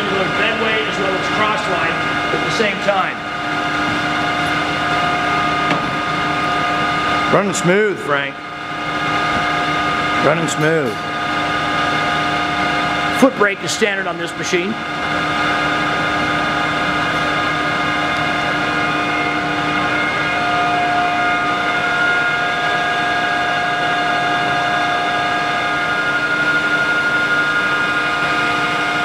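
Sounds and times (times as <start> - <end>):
lathe running with whine: 0.0 - 29.0.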